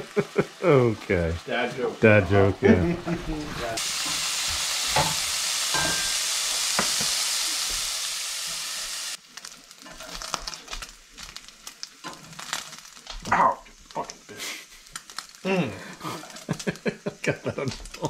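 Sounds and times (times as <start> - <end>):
meat sizzling in a pan: 0.0 - 18.0.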